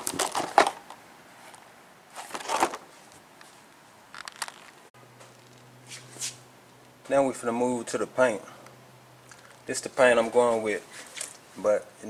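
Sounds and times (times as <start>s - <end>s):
plastic packaging crinkling: 0.0s - 0.8s, 4.1s - 4.8s.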